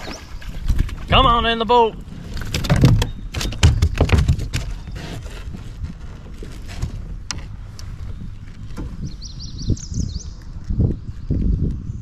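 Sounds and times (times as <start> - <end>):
knocks against kayak hull: 2.4 - 4.7.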